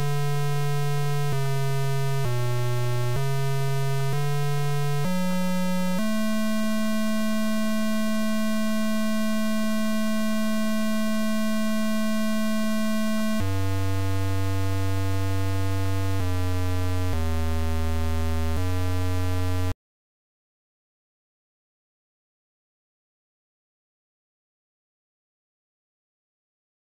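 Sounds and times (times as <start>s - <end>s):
electronic square-wave beep tones: 4.3s - 16.2s.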